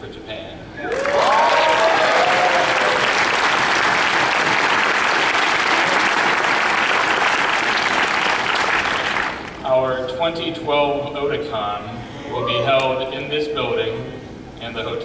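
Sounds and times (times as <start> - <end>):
voices whooping: 0.8 - 3.3, 12.2 - 13.0
audience applauding: 0.8 - 9.6.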